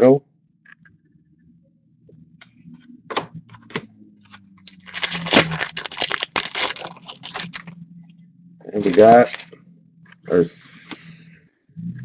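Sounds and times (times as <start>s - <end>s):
plastic wrapper crinkling and tearing: 4.3s - 7.8s, 8.8s - 9.6s.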